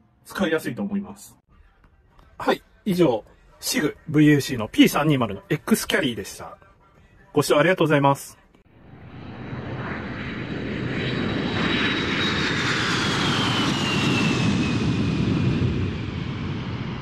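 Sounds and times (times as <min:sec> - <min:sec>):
airplane engine fly-by: 0:08.7 - 0:17.0.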